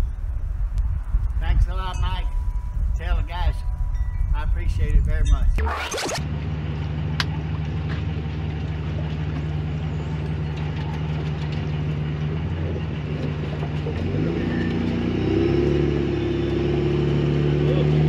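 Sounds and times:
engine speeding up: 5.5 - 18.0.

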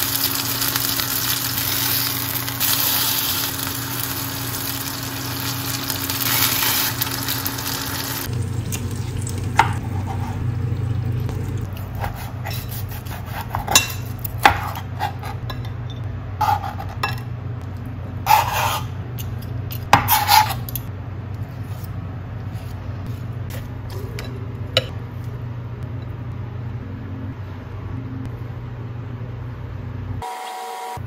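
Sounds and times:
steady low hum: 0.0 - 30.2
tongs and knife scraping plates: 18.3 - 20.9.

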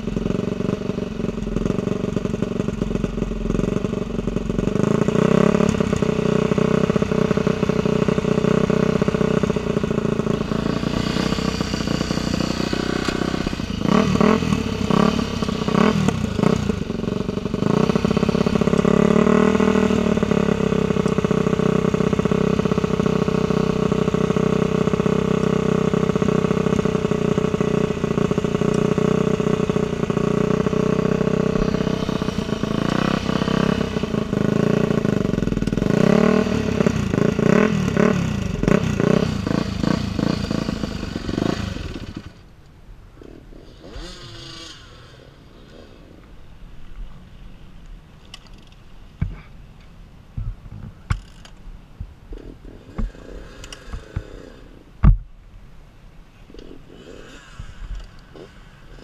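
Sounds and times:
dirt bike engine revving: 0.0 - 42.4, 43.6 - 45.8, 56.6 - 59.0.

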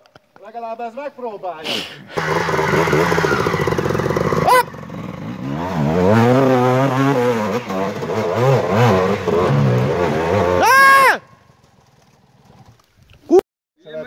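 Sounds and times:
dirt bike engine revving: 2.1 - 12.7.

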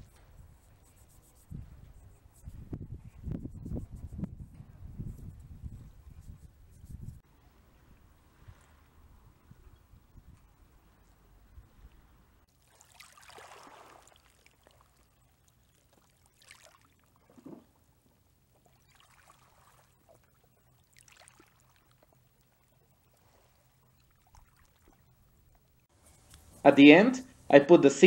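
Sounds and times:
water lapping against rocks: 12.4 - 25.9.

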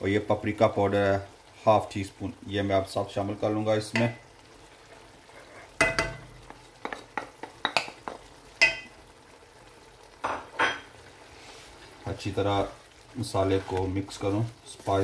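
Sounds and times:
meat sizzling: 0.0 - 15.0
ceramic plate tapping metal pan: 5.8 - 7.9.

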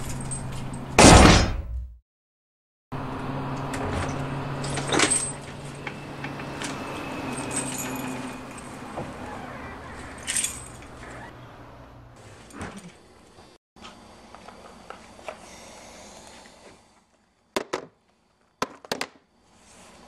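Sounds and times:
small metallic jingles: 0.0 - 0.9, 4.0 - 11.3.

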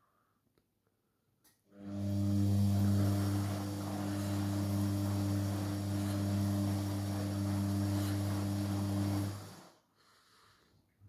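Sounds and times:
washing machine humming: 1.7 - 9.8
washing machine hiss: 1.8 - 9.9.

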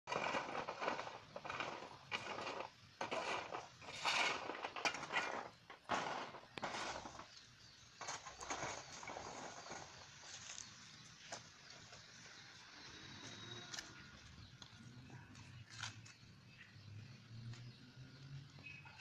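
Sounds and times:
seeds scraped across metal sheet: 0.1 - 10.7.

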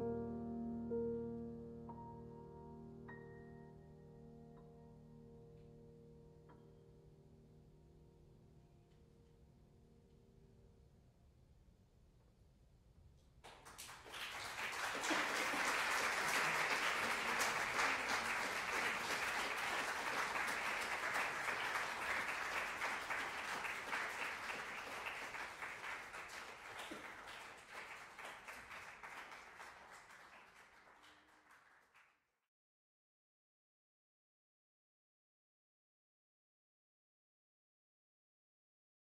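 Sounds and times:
audience applauding: 13.4 - 32.1.

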